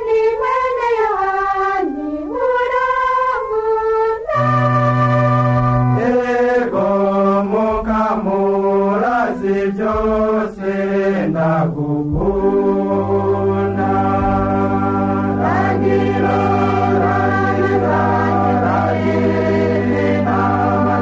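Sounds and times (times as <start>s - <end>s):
slow chanted melody: 0.0s - 21.0s
sustained low notes: 12.0s - 21.0s.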